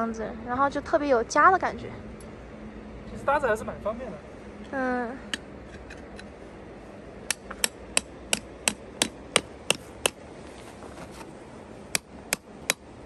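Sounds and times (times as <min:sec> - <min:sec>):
hammer striking metal stake: 0:07.3 - 0:10.2, 0:11.9 - 0:12.9.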